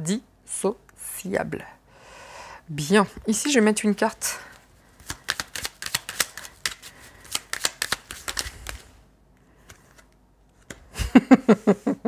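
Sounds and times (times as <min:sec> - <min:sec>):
cards being shuffled: 0:04.5 - 0:10.9.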